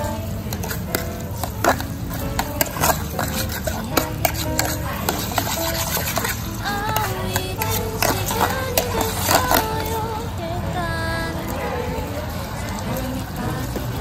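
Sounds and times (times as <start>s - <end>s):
utensil scraping metal tin: 0.1s - 9.9s.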